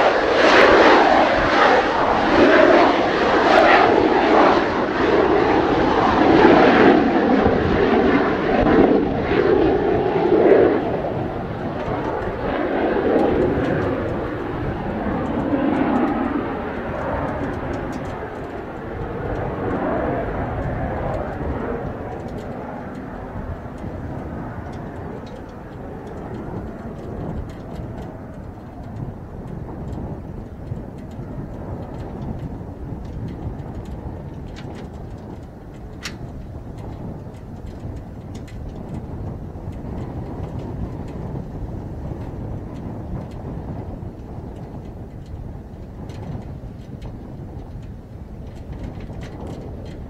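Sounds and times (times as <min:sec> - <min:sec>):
jet engines at take-off power: 0:00.0 - 0:50.0
wind buffeting microphone: 0:00.0 - 0:50.0.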